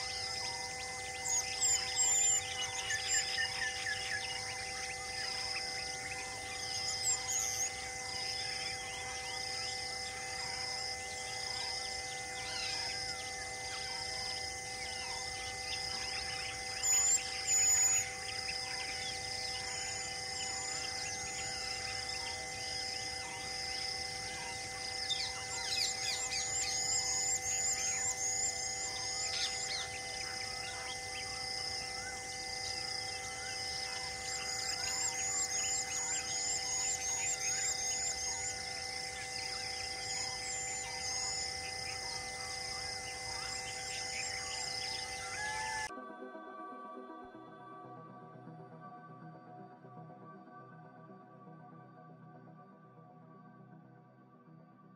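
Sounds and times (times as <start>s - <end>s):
birds chirping: 0.0s - 10.4s, 14.8s - 45.9s
steady hum of held tones: 0.0s - 52.9s.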